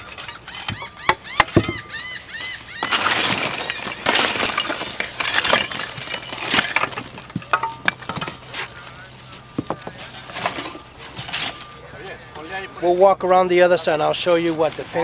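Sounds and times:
roof tiles clattering and scraping: 0.0 - 1.9, 2.8 - 11.8.

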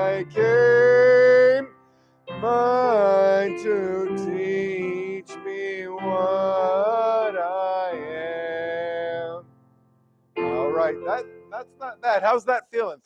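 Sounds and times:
hymn singing: 0.0 - 1.7, 2.4 - 9.4, 10.4 - 12.4
piano accompaniment: 0.0 - 12.4
man singing held notes: 2.4 - 9.4.

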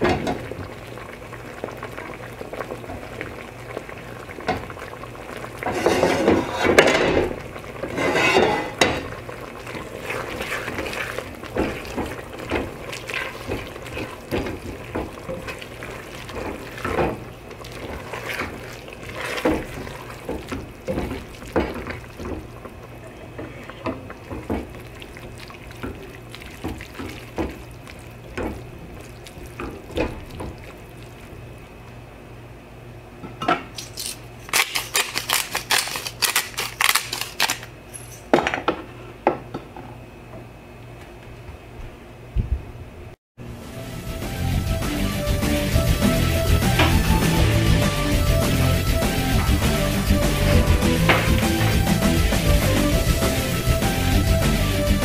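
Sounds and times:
wet stirring of pasta: 1.6 - 31.6.

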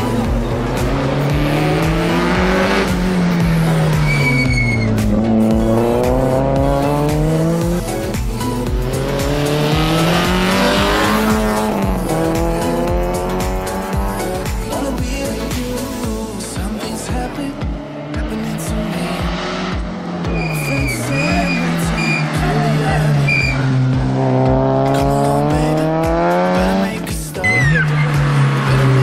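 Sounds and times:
rally car engine revving: 0.0 - 29.0
short high squeal: 4.0 - 5.0, 20.3 - 22.4.

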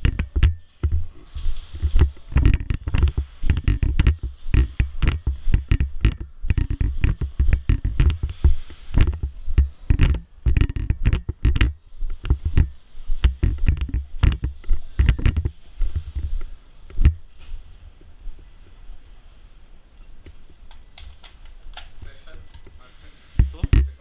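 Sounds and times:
gear knocking against camera: 0.0 - 1.1, 1.7 - 17.2, 23.4 - 24.0.

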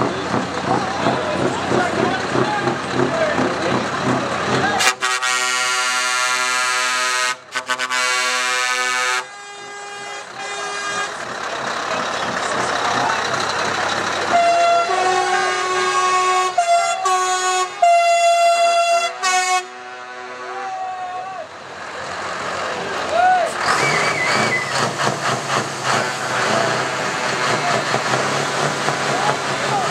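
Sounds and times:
truck engine running: 0.0 - 20.4, 21.4 - 29.9
truck air horns blowing: 4.7 - 11.3, 14.2 - 21.2.

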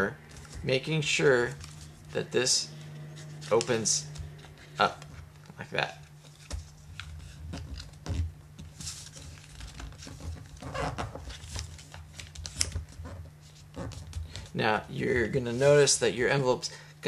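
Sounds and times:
paper rustling and crinkling: 1.4 - 2.1, 2.9 - 14.5
paper crackling as folds pressed: 3.2 - 14.5.

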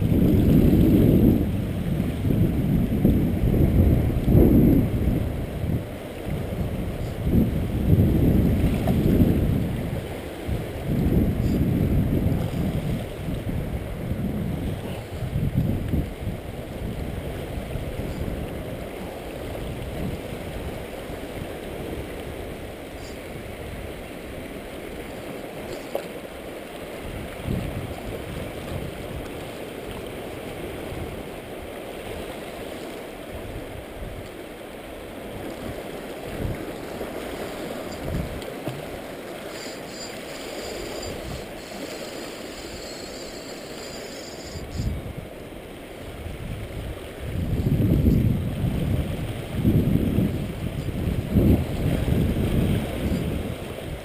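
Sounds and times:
wind buffeting microphone: 0.0 - 25.3, 26.9 - 32.2, 35.2 - 54.0
water washing against rocks: 35.2 - 45.0.

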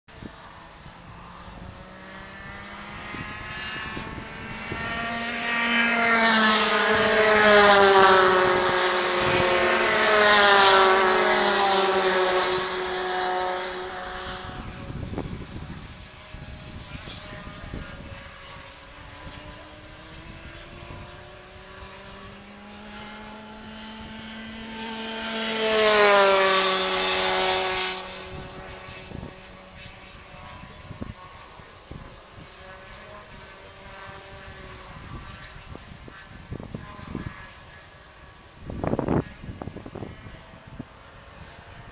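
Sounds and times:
go-kart engines passing by: 0.1 - 41.9.

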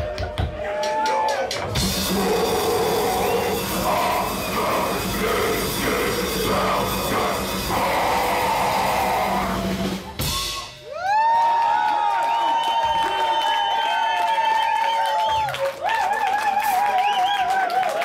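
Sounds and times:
live rock band playing: 1.7 - 10.8.

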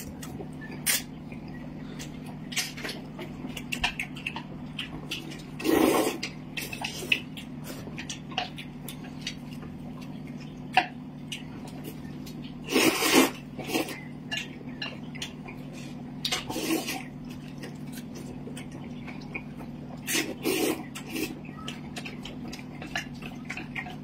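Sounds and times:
noodle slurping: 5.6 - 6.3, 12.6 - 14.0, 16.4 - 17.1, 20.0 - 21.4.

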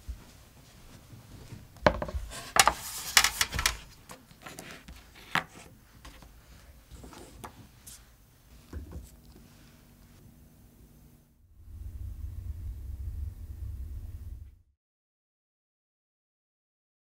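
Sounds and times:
knocks on wooden table: 1.8 - 2.2
scraping on table: 1.8 - 3.8.

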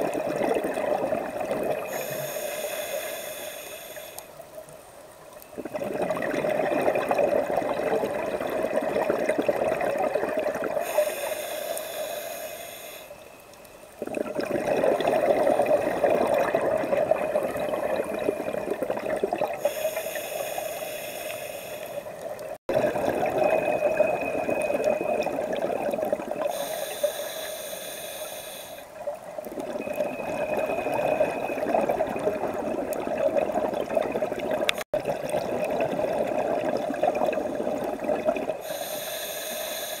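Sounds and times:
bubbling exhalations underwater: 0.0 - 2.0, 5.6 - 10.9, 14.0 - 19.7, 22.7 - 26.5, 29.5 - 38.7
regulator hissing inhalations: 1.9 - 4.4, 10.8 - 13.4, 19.6 - 22.2, 26.4 - 28.9, 38.6 - 40.0.

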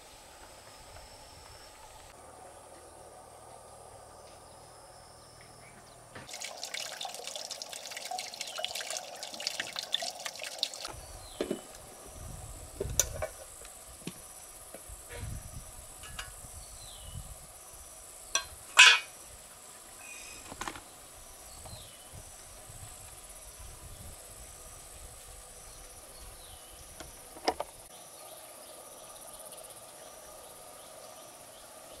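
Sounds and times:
water running and splashing: 6.3 - 11.8.

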